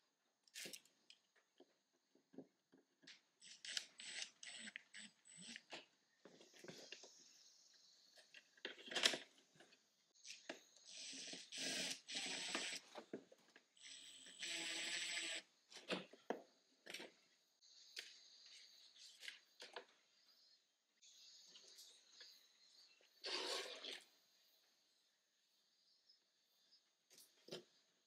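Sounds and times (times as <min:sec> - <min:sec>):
clicks and rustling of parts: 0:08.1 - 0:10.6.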